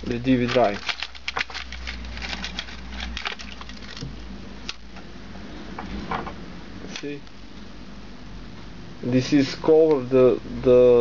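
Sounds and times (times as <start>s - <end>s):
plastic drive casing rattling: 0.4s - 4.1s.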